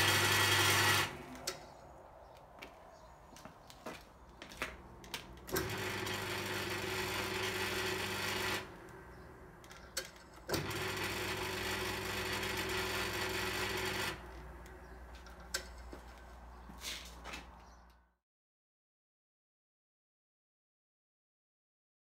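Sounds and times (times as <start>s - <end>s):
lathe motor humming: 0.0s - 1.3s, 5.5s - 9.4s, 10.5s - 14.3s.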